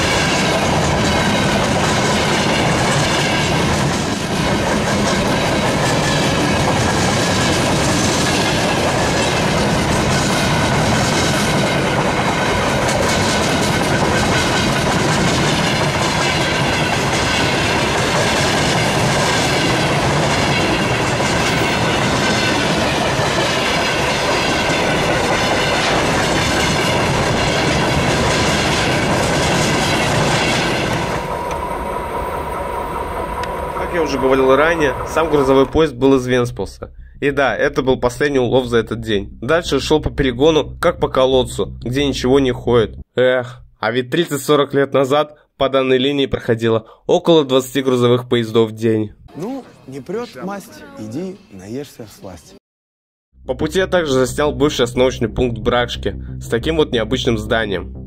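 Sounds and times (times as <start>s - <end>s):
wheels clickety-clack over rail joints: 0.0s - 35.7s
train wheels rumbling on rails: 0.0s - 42.6s.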